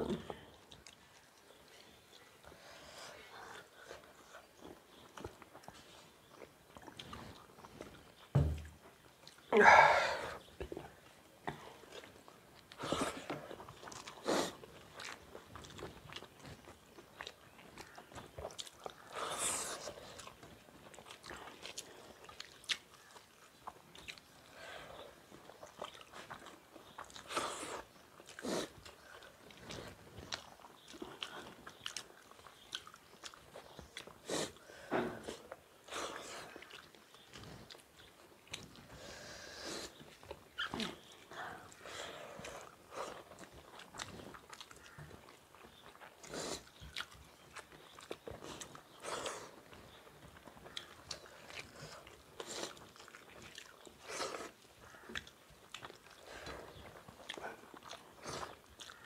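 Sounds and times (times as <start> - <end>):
people chewing: 0.0 - 59.0
low thump: 8.3 - 8.7.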